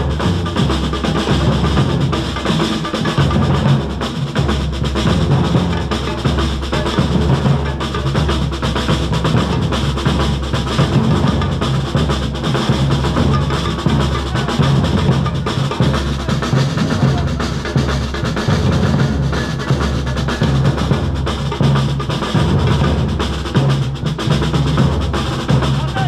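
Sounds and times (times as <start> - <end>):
marching drum band: 0.0 - 26.0.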